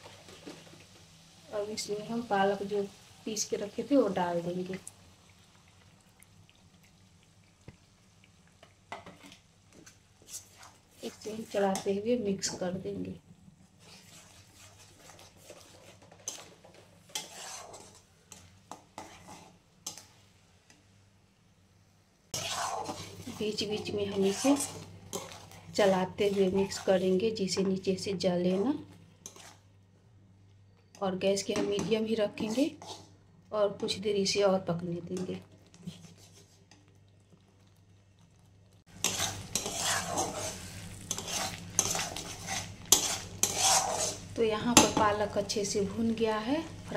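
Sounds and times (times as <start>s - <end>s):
spatula scraping metal pan: 13.8s - 20.1s, 22.4s - 27.1s, 29.2s - 29.6s, 31.8s - 33.1s, 38.9s - 45.0s.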